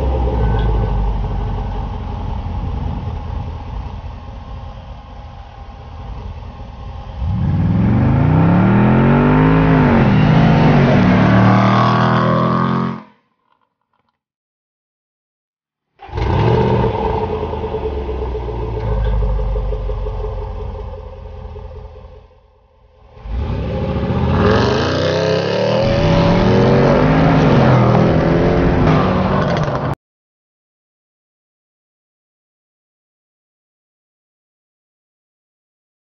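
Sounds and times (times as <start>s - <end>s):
car engine accelerating at full throttle: 0.0s - 13.0s, 16.0s - 22.2s, 23.0s - 30.0s.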